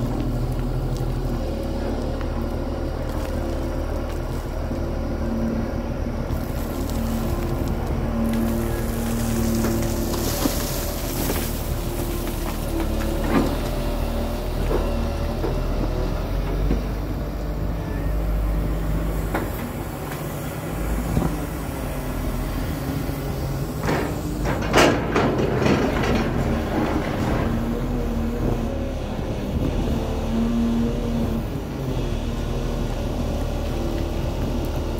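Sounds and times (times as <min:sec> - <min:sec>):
excavator diesel engine running: 0:00.0 - 0:34.9.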